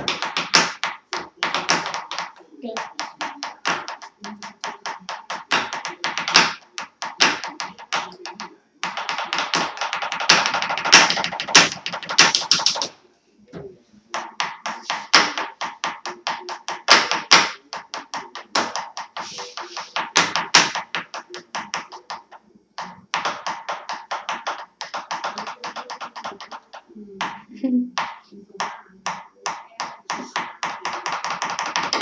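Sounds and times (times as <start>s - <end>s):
markers tapping on wooden table: 0.0s - 12.9s, 14.1s - 27.4s, 28.0s - 32.0s.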